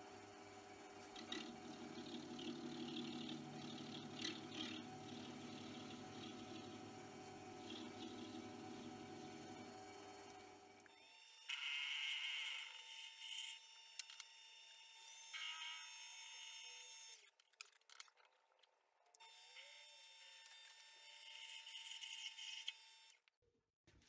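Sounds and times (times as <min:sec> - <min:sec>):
lathe motor whine: 0:00.1 - 0:11.8.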